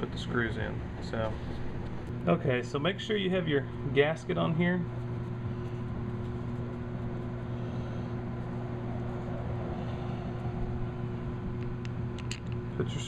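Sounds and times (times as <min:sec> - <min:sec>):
washing machine humming: 0:00.0 - 0:13.0.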